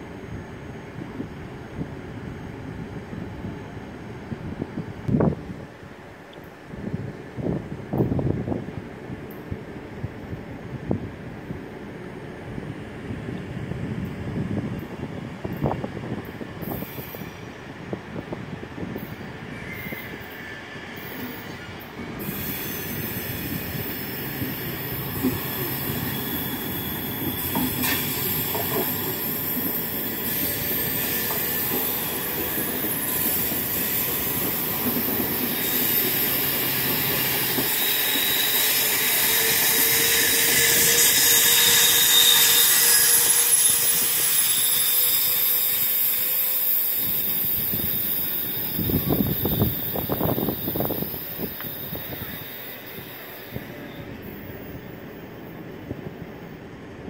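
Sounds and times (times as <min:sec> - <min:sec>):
train rolling on rails: 0:00.0 - 0:57.0
wheel squeal: 0:19.6 - 0:54.1.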